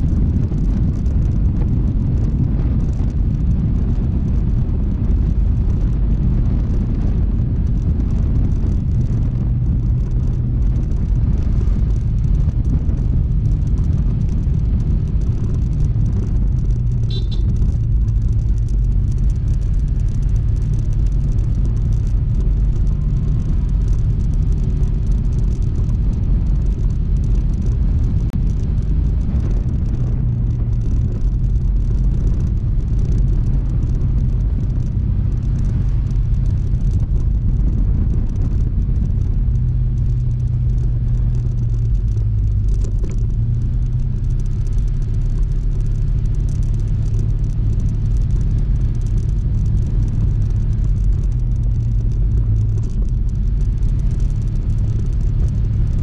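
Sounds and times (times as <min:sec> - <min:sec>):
road and wind rumble: 0:00.0 - 0:56.0
scooter engine running: 0:07.5 - 0:39.6.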